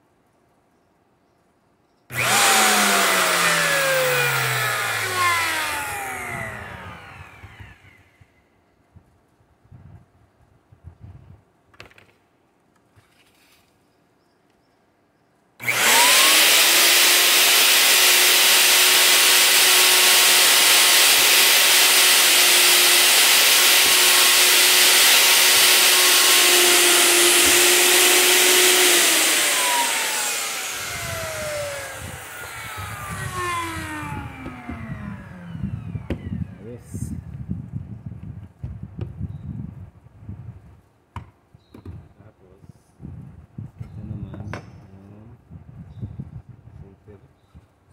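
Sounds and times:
router motor whining: 2.1 - 8.4, 15.6 - 37.2.

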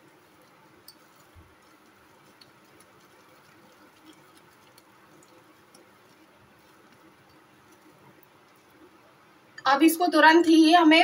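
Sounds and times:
spatula ticking in glass bowl: 0.0 - 8.8.

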